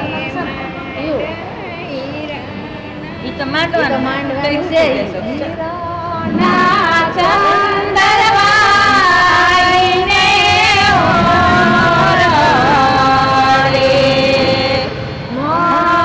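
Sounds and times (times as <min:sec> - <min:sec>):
women singing in chorus: 0:05.5 - 0:16.0.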